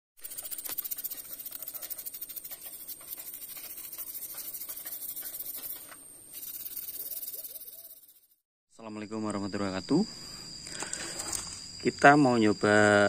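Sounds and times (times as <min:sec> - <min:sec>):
toothbrush scrubbing wet metal: 0:00.2 - 0:08.2.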